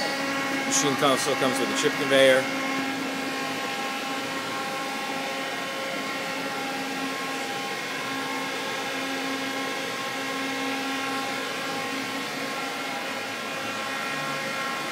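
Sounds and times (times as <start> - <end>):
lathe humming and whining: 0.0 - 14.9.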